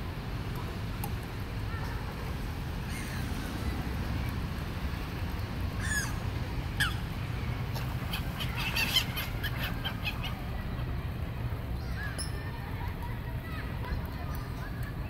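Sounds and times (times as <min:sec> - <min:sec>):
gulls calling: 0:05.8 - 0:15.0.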